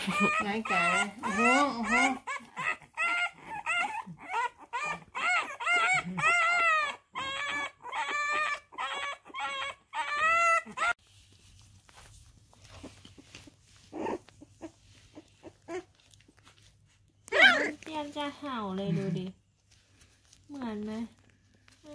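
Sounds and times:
puppy whining and yelping: 0.0s - 11.0s, 12.5s - 18.0s.

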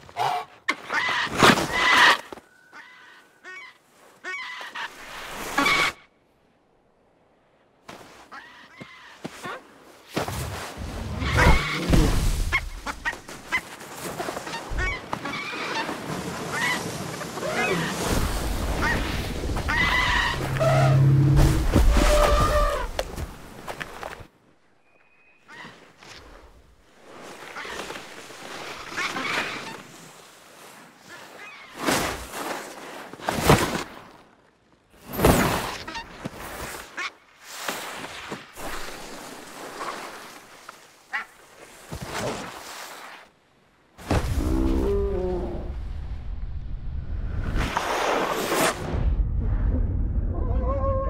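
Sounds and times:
bodies sliding over snow: 9.2s - 24.3s, 25.8s - 34.2s, 35.0s - 43.3s
whoosh through snow: 47.2s - 49.2s.

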